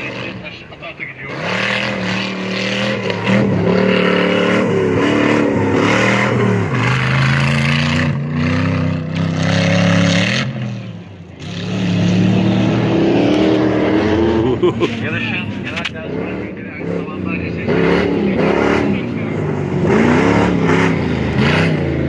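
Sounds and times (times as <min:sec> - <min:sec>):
truck engines revving hard: 0:00.0 - 0:22.0.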